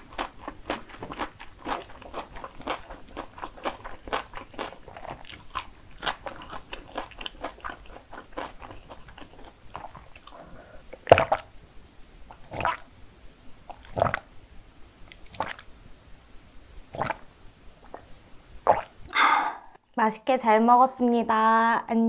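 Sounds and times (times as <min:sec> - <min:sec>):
wet chewing clicks: 0:00.0 - 0:11.5
gulps of drinking: 0:18.7 - 0:19.8.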